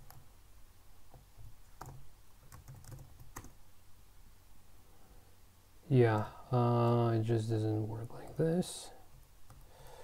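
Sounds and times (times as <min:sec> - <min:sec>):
computer keyboard keystrokes: 0:01.4 - 0:03.6.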